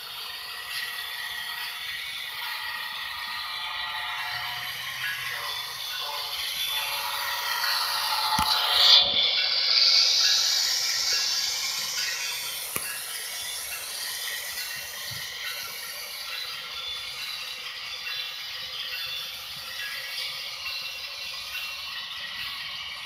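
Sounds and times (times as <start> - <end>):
model train rattling and whirring: 0.0 - 23.0.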